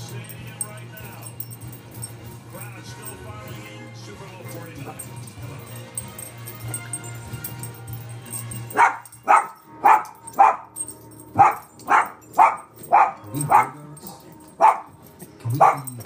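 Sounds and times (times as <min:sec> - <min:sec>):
small dog barking: 0:08.7 - 0:10.8, 0:11.4 - 0:13.9, 0:14.5 - 0:16.0.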